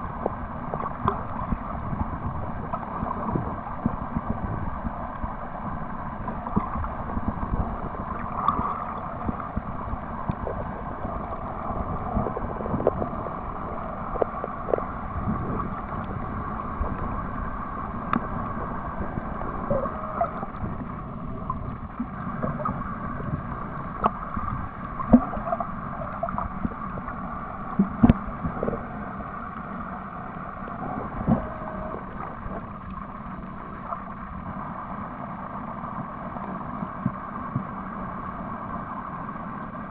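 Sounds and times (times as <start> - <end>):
underwater water rush: 0.0 - 39.9
underwater clicks: 12.1 - 16.2, 27.7 - 28.8.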